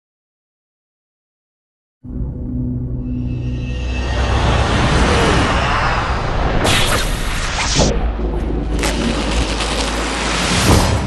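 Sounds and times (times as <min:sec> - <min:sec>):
whoosh: 0:03.1 - 0:11.0.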